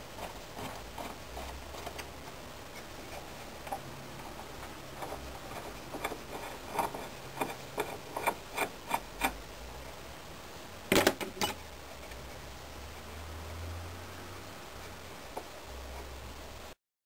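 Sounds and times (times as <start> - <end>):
steel tool scraping metal: 5.0 - 9.4.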